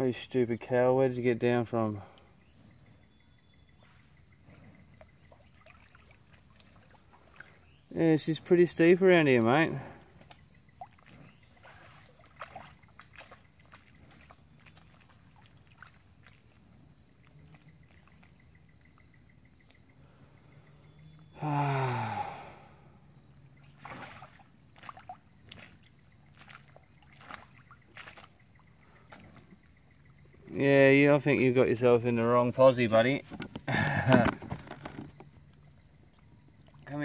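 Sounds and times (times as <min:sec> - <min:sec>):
quiet river water: 0:00.0 - 0:37.0
water splashes and drips: 0:04.9 - 0:20.0, 0:23.5 - 0:30.7, 0:35.3 - 0:37.0.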